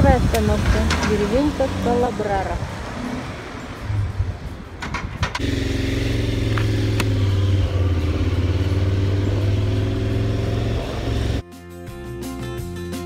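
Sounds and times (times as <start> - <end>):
motorcycle engine idling: 5.0 - 11.4.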